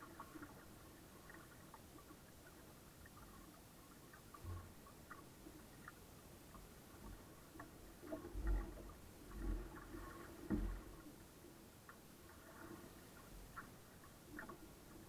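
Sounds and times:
water slapping against hull: 4.2 - 11.2
light clicks and creaks: 11.8 - 15.0.

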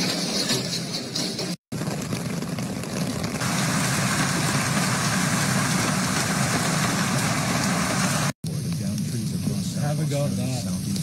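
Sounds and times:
hail rushing roar: 1.7 - 9.9.

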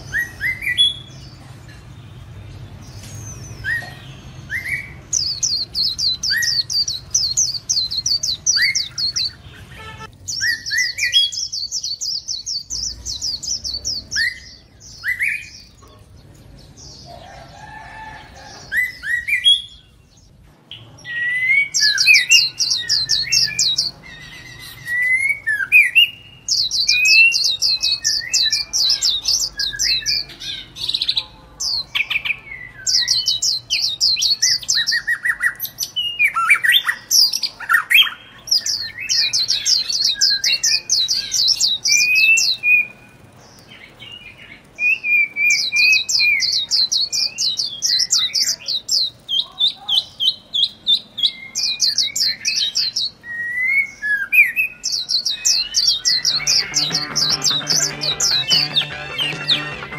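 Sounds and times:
rapid high bird chips: 55.9 - 59.9.

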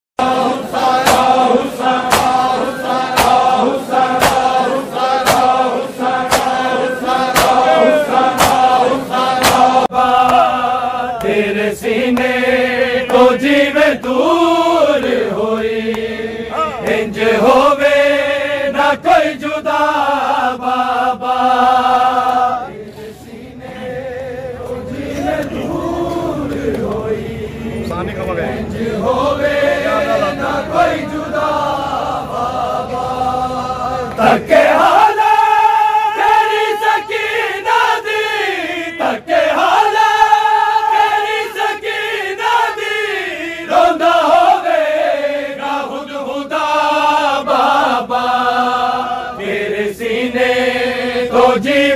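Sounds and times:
sharp beat: 0.9 - 10.4
man chanting a lament: 7.1 - 8.4, 16.4 - 17.1.

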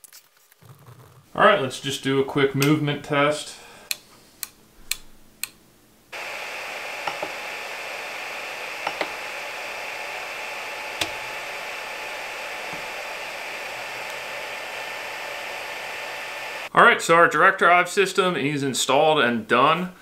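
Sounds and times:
printer fans and motors whirring: 6.2 - 16.7.

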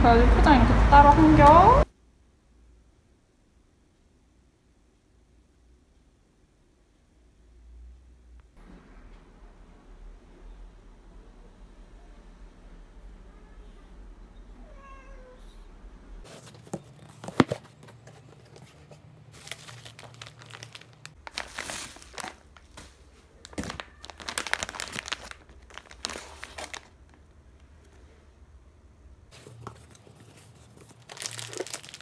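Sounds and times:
cat meowing faintly: 13.0 - 15.8, 23.6 - 24.4
plastic bag crinkling: 16.4 - 27.3, 29.3 - 32.0.

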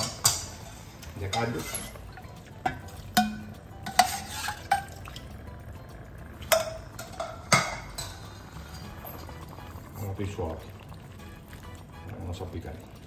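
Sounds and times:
utensil clinking against pot: 0.0 - 5.2, 6.4 - 9.4
utensil stirring sauce in pot: 0.0 - 13.0.

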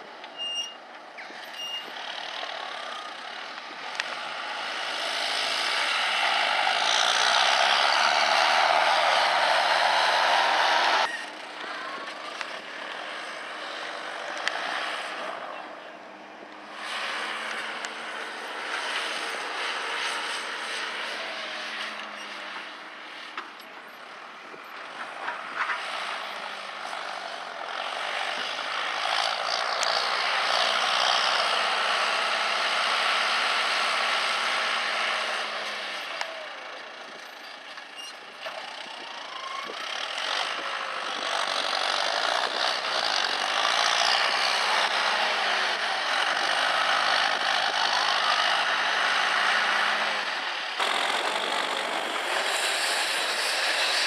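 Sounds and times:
tractor diesel engine revving: 2.0 - 15.5, 26.2 - 37.2, 38.0 - 54.0.

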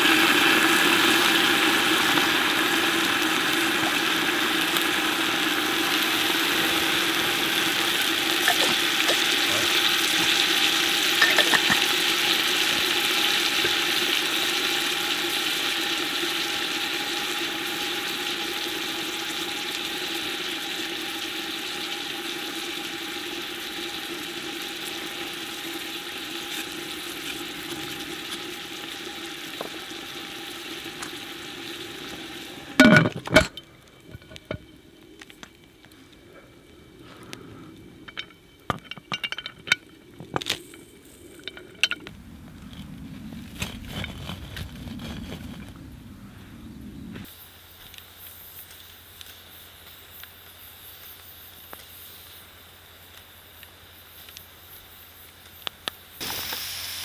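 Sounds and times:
pressure cooker sizzling and hissing: 0.0 - 35.9, 47.2 - 57.0
metal lid clanks: 11.2 - 11.9, 32.8 - 34.6.

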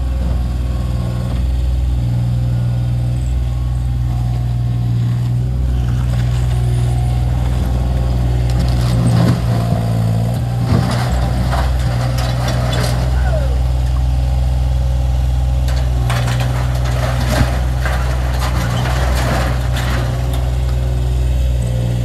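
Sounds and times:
loader diesel engine running: 0.0 - 22.0
clanks and crunches in bucket: 15.6 - 20.8.

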